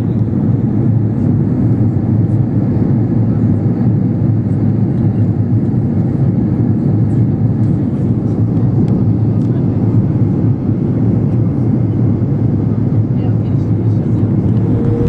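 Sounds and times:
airliner cabin roar: 0.0s - 15.0s.

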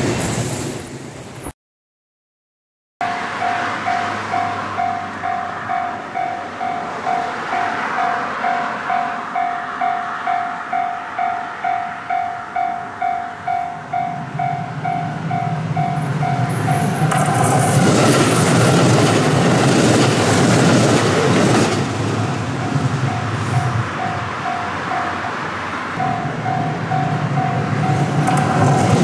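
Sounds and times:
train passing noise: 0.0s - 1.5s, 3.0s - 29.0s
diesel train engine hum: 3.0s - 29.0s
level crossing bell ringing: 26.0s - 28.1s.

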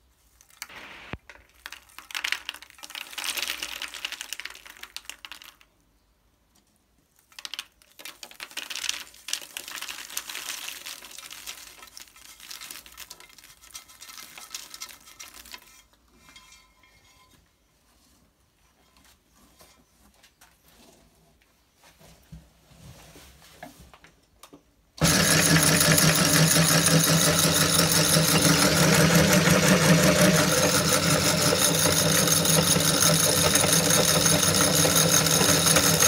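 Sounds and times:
popcorn pouring onto a ceramic plate: 0.4s - 5.7s, 7.3s - 15.6s, 25.0s - 36.0s.

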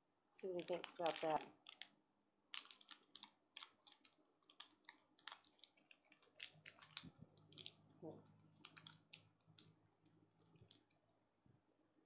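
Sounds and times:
cat chewing wet clicks: 2.6s - 7.8s.

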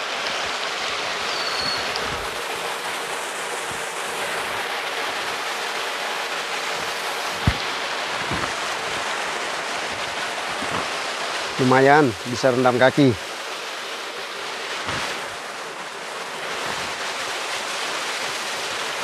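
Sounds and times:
waterfall splashing into pool: 0.0s - 19.0s
short thump: 7.4s - 8.6s.

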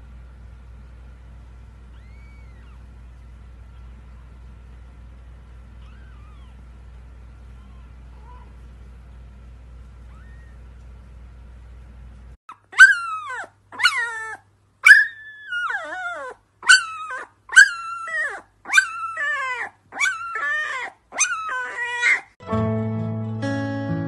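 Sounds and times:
puppy howling: 1.9s - 2.9s, 5.8s - 6.7s, 7.4s - 8.6s, 10.0s - 10.6s, 12.7s - 22.4s
acoustic guitar music: 22.4s - 24.0s.

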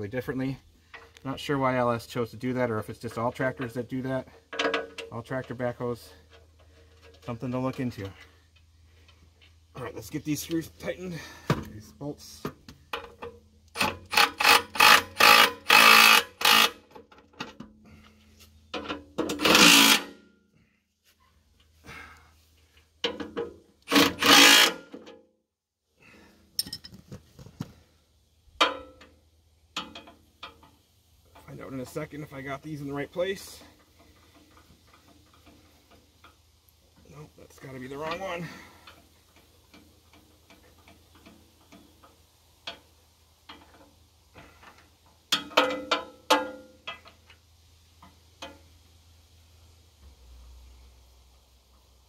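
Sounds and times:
metal lever clicks and clanks: 4.5s - 5.6s, 45.3s - 47.2s
tool handling clatter: 26.5s - 27.7s, 43.5s - 47.3s.

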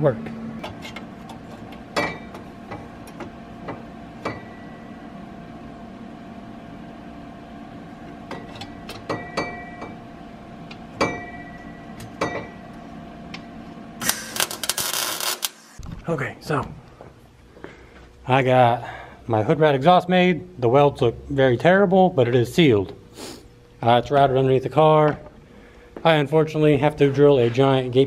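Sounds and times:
faint steady hum: 15.8s - 28.0s.

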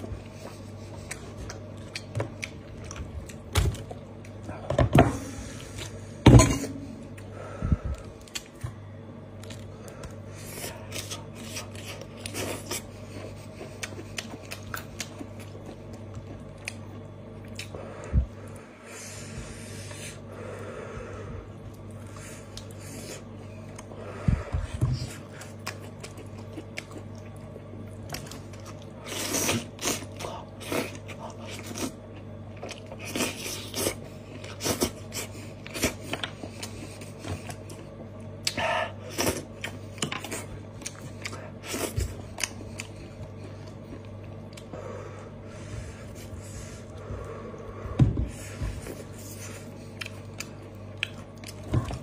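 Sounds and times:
chewing and biting: 0.0s - 4.4s, 9.3s - 17.8s, 24.9s - 44.8s, 48.7s - 52.0s.

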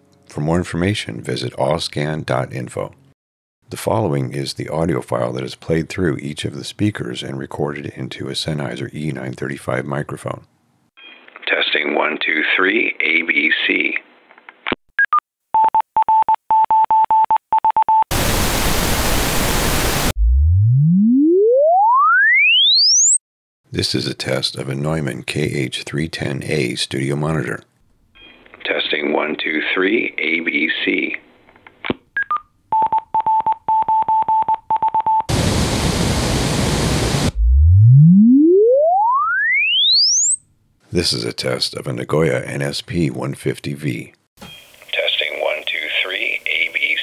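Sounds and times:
pink noise: 18.1s - 20.2s, 35.3s - 37.4s
pure tone sweeping upward: 20.2s - 23.2s, 37.4s - 40.4s
two-note falling beep: 37.6s - 40.4s.

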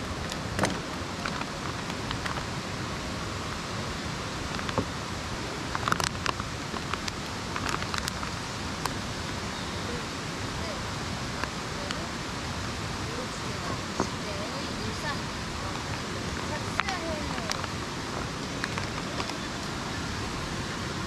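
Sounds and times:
oil pops and crackles: 5.7s - 9.0s.

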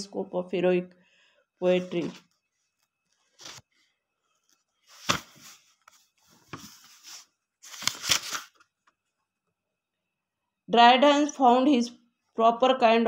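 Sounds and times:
paper rustling: 1.8s - 3.8s, 4.4s - 8.9s.

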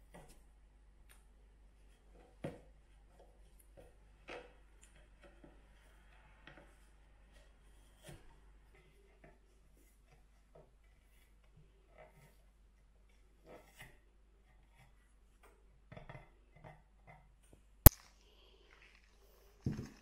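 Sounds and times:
sharp loud click: 17.9s - 18.1s.

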